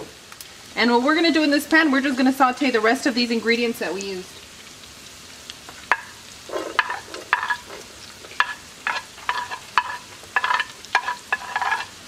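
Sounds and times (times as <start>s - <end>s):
wooden spoon scraping ceramic plate: 6.5s - 12.0s.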